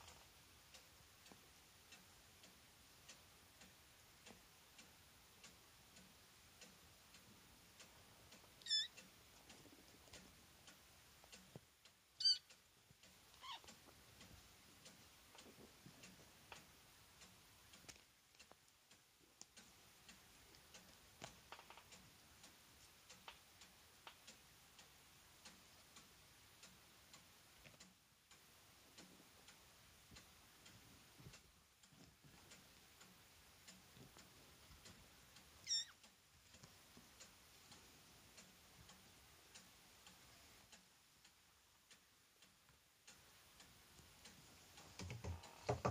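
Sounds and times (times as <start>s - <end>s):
faint steady ticking: 0.0s - 45.9s
kittens mewing: 35.7s - 35.9s.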